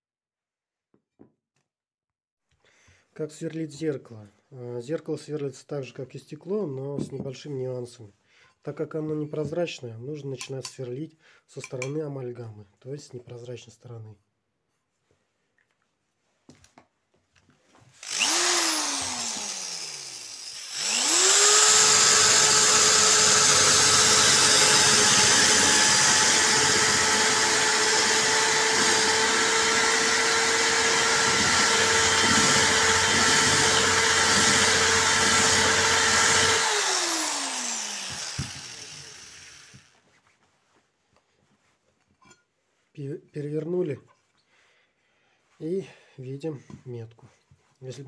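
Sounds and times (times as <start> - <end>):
drill bit grinding into glass: 18.0 - 39.8
electric drill whining: 18.0 - 40.0.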